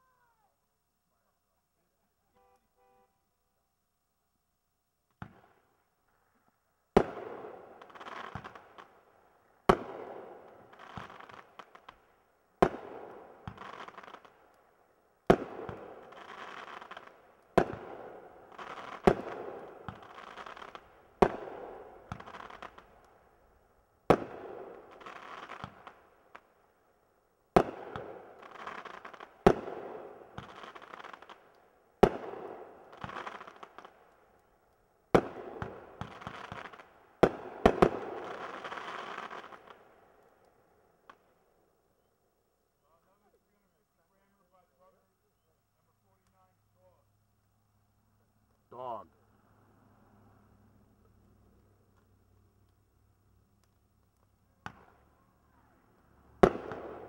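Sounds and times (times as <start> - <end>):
firework crackling: 6.9 - 14.6, 15.2 - 26.6, 27.5 - 41.4, 50.8 - 57.0.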